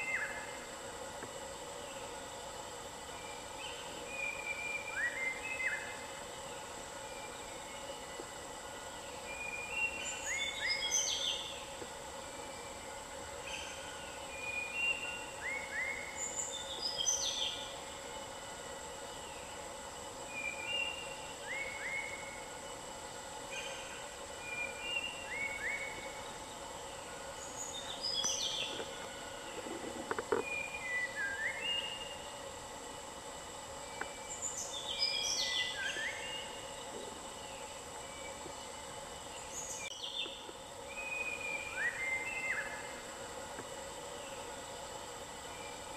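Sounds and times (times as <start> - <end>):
bird singing whistled notes: 3.2 - 5.9, 30.4 - 32.2, 39.4 - 42.9.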